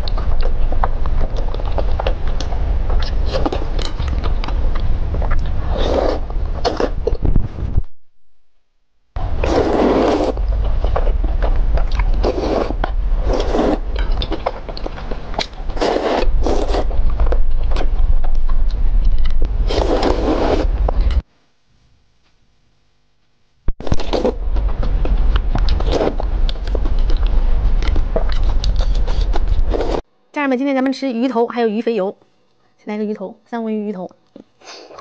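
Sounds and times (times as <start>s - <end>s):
wet chewing: 0.0s - 7.3s, 9.2s - 21.2s, 23.8s - 30.0s
low hum: 0.0s - 34.3s
slurping noodles: 5.3s - 7.3s, 9.2s - 17.1s, 19.6s - 21.2s, 23.8s - 25.0s, 25.6s - 30.0s.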